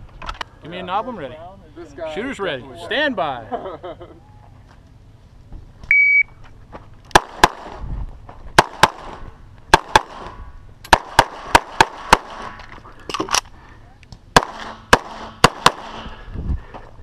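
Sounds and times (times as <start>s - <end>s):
shot timer beep: 5.9s - 6.3s
pistol shots: 7.1s - 7.8s, 8.6s - 12.6s, 14.3s - 16.1s.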